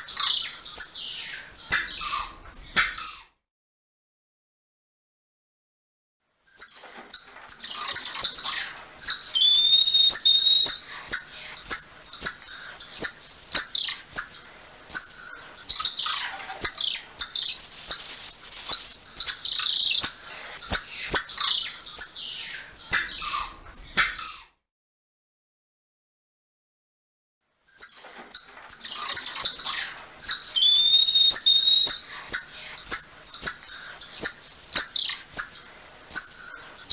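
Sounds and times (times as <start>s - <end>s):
monkey chirps and whistles: 9.4s - 10.8s, 17.4s - 19.4s, 30.3s - 32.0s.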